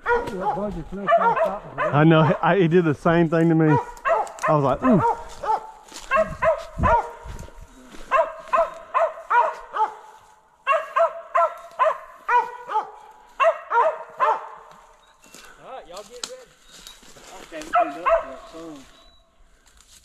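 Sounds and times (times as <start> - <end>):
dog barking repeatedly: 0.0 - 2.5, 3.6 - 7.4, 8.0 - 14.8, 17.7 - 18.8.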